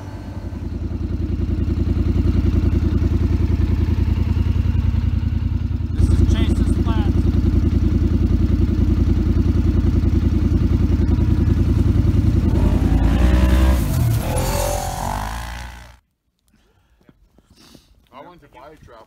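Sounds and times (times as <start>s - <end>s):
off-road vehicle engine running: 0.0s - 16.0s.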